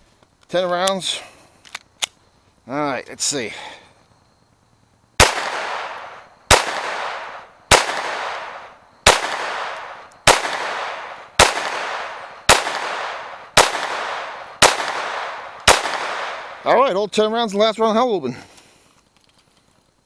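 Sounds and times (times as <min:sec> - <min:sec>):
pistol shots echoing: 0:05.2 - 0:16.8.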